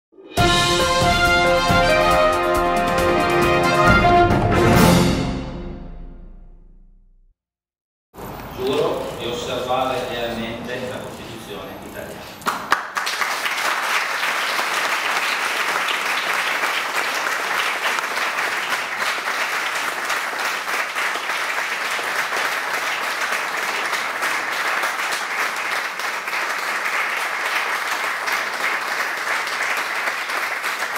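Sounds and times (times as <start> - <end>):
crowd applauding: 11.9 - 30.9.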